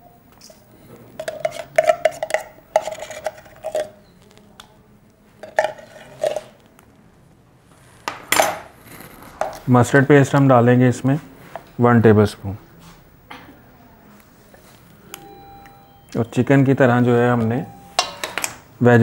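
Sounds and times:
metal spoon scraping a tin can: 0:01.2 - 0:04.0, 0:05.4 - 0:06.6
metallic knock: 0:18.0 - 0:18.6.

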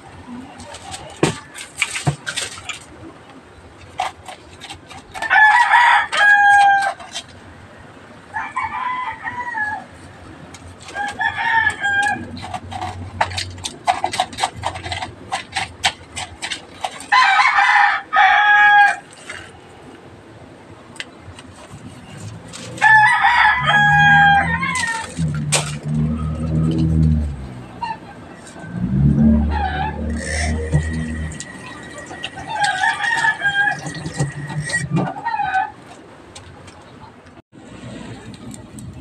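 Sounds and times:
rooster crowing: 0:08.3 - 0:09.9, 0:17.1 - 0:19.0, 0:22.8 - 0:25.2, 0:29.2 - 0:35.8.

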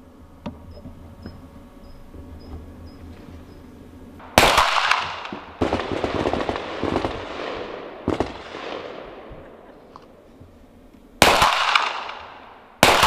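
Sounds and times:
gunshot echo off walls: 0:04.2 - 0:09.4, 0:11.2 - 0:13.0
pistol shots: 0:04.2 - 0:09.4, 0:11.2 - 0:13.0.

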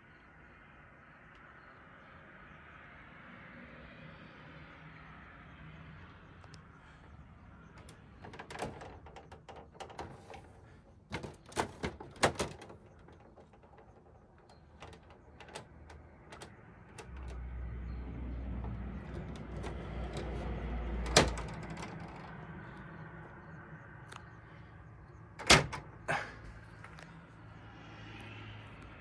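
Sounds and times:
plastic panel clicks and knocks: 0:07.8 - 0:17.4, 0:18.6 - 0:22.4.

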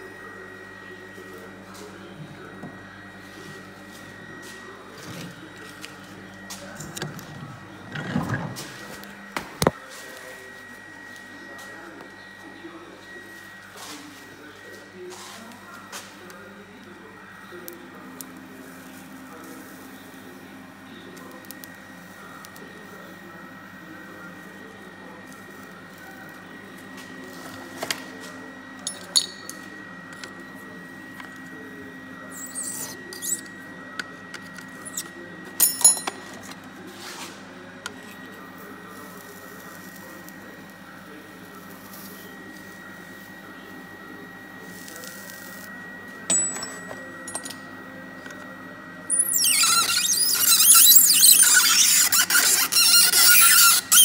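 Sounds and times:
induction heater humming: 0:00.0 - 0:54.0
metal tools clinking: 0:28.8 - 0:29.6, 0:34.9 - 0:36.4, 0:46.3 - 0:47.6
heater coil high-pitched squeal: 0:31.5 - 0:33.9, 0:34.7 - 0:35.8, 0:49.0 - 0:54.0.

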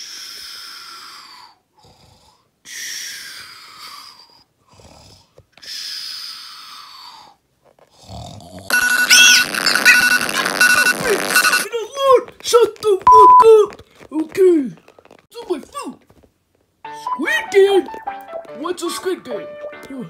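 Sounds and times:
exaggerated snores: 0:01.8 - 0:02.5, 0:03.7 - 0:05.4, 0:06.3 - 0:08.7
electronic alarm tune: 0:08.7 - 0:11.7, 0:13.1 - 0:13.4.

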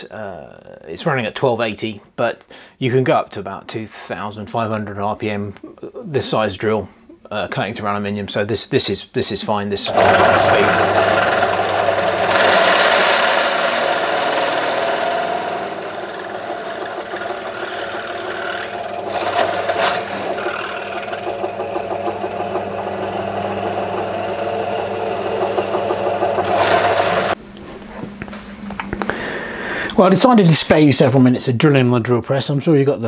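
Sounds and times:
drill cutting into aluminium: 0:09.9 - 0:27.4
drill press motor hum: 0:09.9 - 0:27.4.

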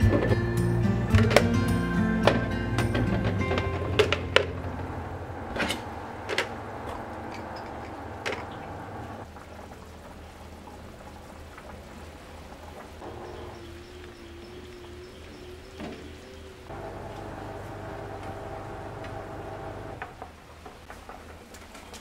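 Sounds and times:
plastic kitchenware clacking on tray: 0:02.2 - 0:04.7.

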